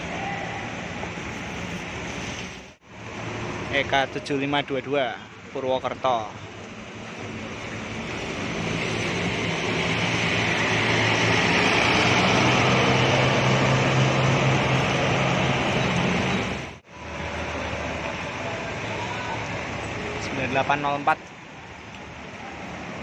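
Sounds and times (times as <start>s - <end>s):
bus diesel engine passing: 0.0s - 23.0s
bus engine rumble: 0.0s - 23.0s
tyres hissing on wet road: 0.0s - 23.0s.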